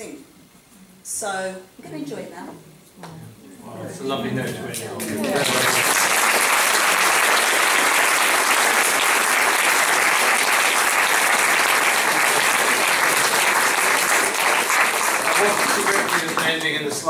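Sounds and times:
audience applauding: 4.8s - 17.0s.

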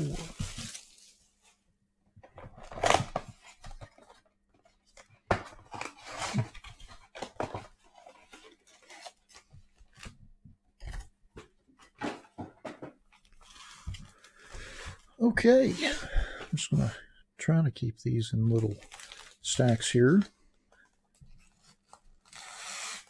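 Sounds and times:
card packs crinkling and rustling: 0.1s - 1.2s, 2.5s - 10.2s, 18.5s - 20.4s.

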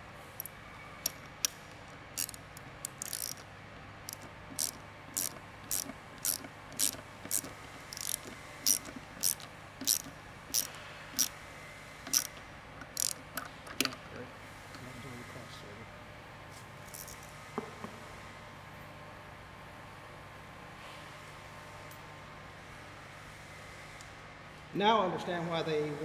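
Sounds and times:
ratchet wrench clicking: 0.4s - 11.3s, 12.1s - 14.0s, 16.9s - 17.2s.

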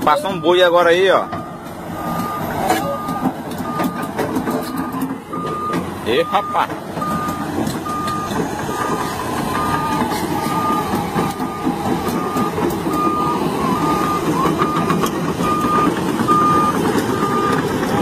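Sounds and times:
diesel engine running: 0.0s - 18.0s
excavator travel alarm beeping: 0.0s - 18.0s
steel tracks clattering: 0.8s - 18.0s.

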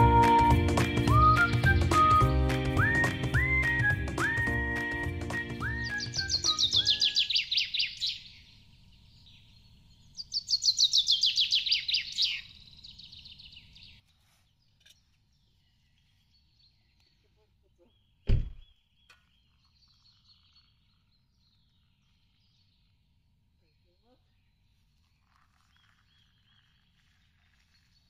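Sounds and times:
songbird singing falling phrases: 0.0s - 28.0s
faint distant birdsong: 5.4s - 28.0s
sharp knock: 18.3s - 18.6s.

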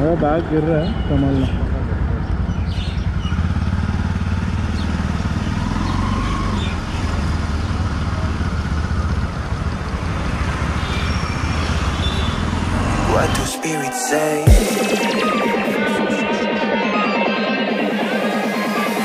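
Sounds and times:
motorcycle engine running slowly: 1.5s - 12.7s.

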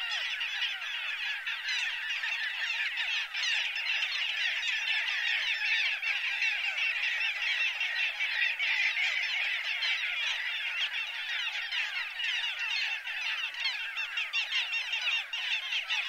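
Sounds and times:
gulls calling: 0.0s - 16.0s.

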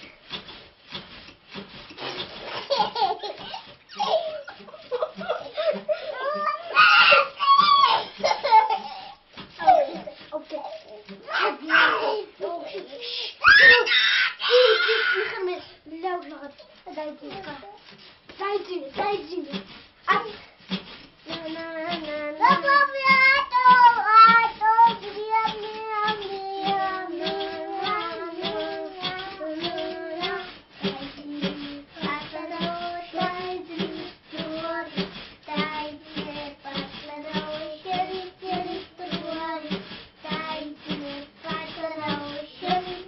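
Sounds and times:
steady beat of sharp taps: 0.0s - 11.3s, 15.7s - 43.0s
child singing: 21.2s - 43.0s.

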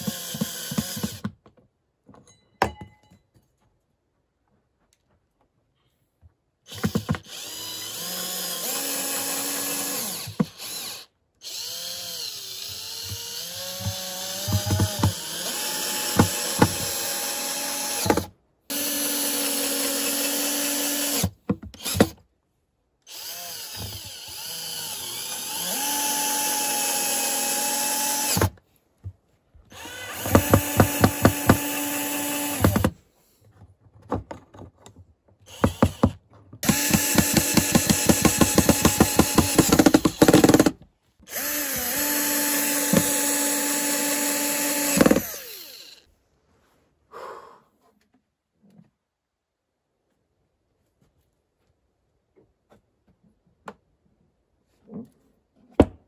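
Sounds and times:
cordless drill whining: 0.0s - 1.3s, 6.7s - 22.2s, 23.1s - 28.6s, 29.7s - 33.0s, 35.5s - 46.1s.

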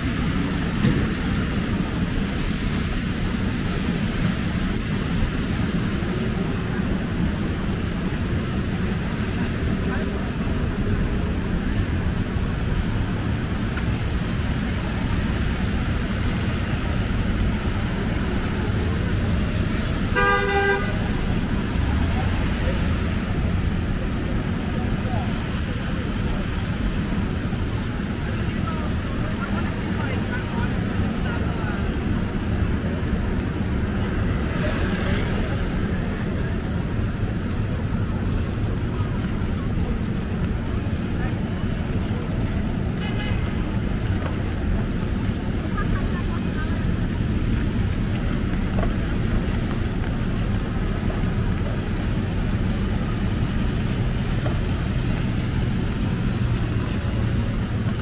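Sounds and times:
traffic rumble with tyre hiss: 0.0s - 58.0s
car horn honking: 20.1s - 21.2s, 43.0s - 43.5s.

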